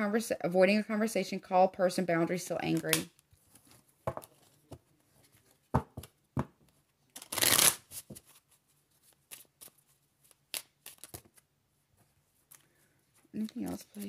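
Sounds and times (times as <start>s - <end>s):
cards shuffling: 7.2s - 11.5s, 12.4s - 14.0s.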